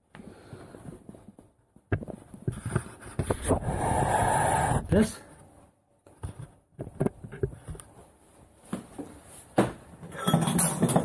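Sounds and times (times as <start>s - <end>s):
metal plates being moved: 10.1s - 11.0s.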